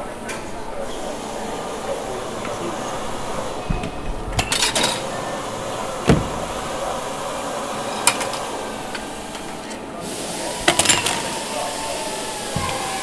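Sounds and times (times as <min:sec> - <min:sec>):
steady workshop background noise: 0:00.0 - 0:13.0
loud thud: 0:06.0 - 0:06.7.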